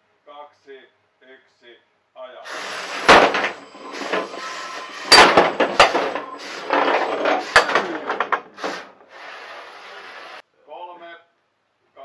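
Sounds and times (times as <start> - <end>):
sharp hits: 2.5 - 9.0
robots knocking and clattering: 2.7 - 9.0.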